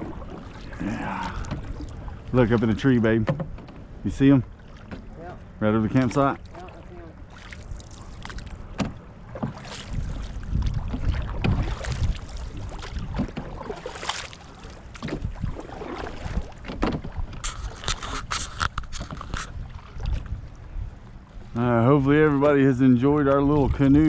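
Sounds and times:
paddle knocking on hull: 0.0s - 7.5s, 8.6s - 17.4s
paddle splashing in water: 0.0s - 21.6s
low microphone rumble: 19.5s - 24.0s.

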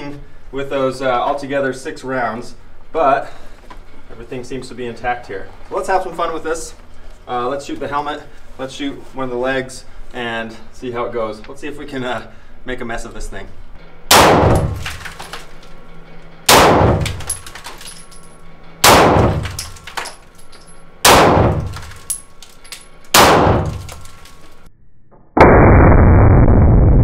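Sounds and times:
pistol shots echoing: 14.1s - 15.3s, 16.5s - 17.6s, 18.8s - 20.1s, 21.1s - 22.2s, 23.1s - 24.1s.

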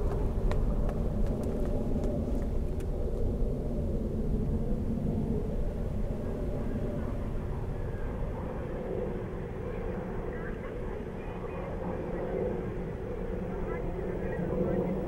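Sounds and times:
footsteps on wooden boardwalk: 0.0s - 2.9s
steady low rumble: 0.0s - 15.0s.

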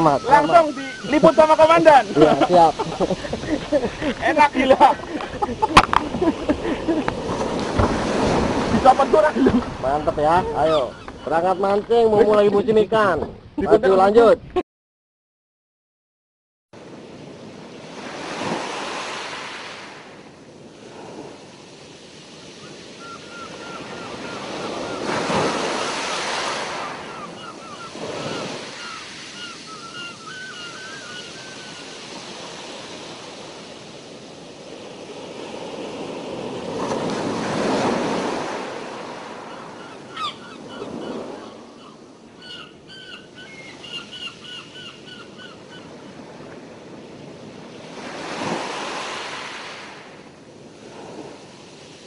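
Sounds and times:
sea waves washing in: 0.0s - 13.1s, 16.8s - 52.0s
wind on microphone: 0.0s - 14.6s.

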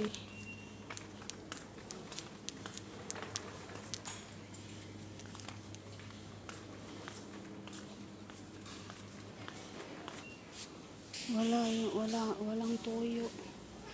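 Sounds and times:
steady low hum: 0.0s - 13.9s
footsteps: 0.8s - 10.2s
light clicks and taps: 0.9s - 4.3s.

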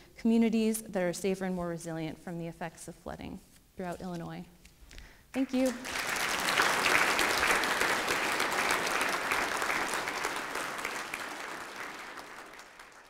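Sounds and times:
audience applauding: 5.4s - 13.0s.

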